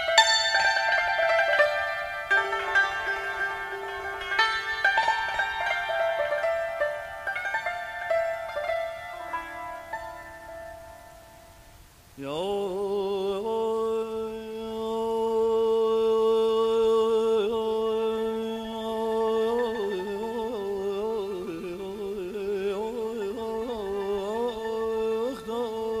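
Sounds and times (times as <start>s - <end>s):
man singing with vibrato: 0.0s - 10.8s, 12.1s - 26.0s
instrument note: 0.0s - 11.6s.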